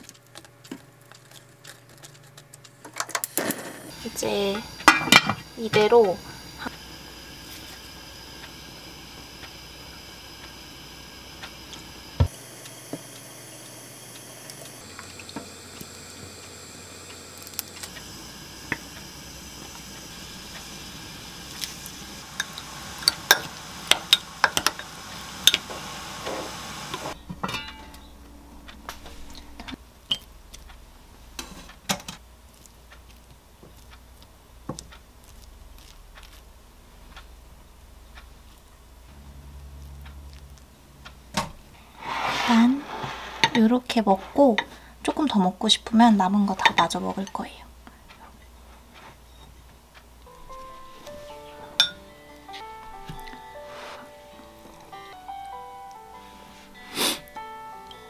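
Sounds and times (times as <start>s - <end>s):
spoon clinking against glass: 51.8s - 52.0s.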